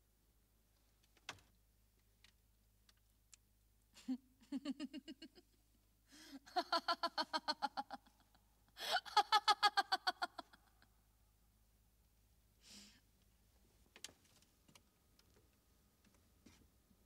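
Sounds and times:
person laughing: 4.0s - 5.6s, 6.2s - 10.8s.

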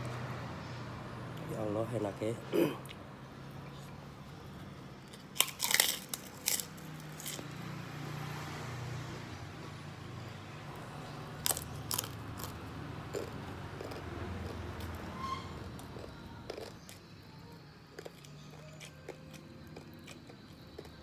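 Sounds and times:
cracker crunching while chewed: 5.0s - 7.5s, 11.4s - 17.2s, 17.9s - 21.0s.

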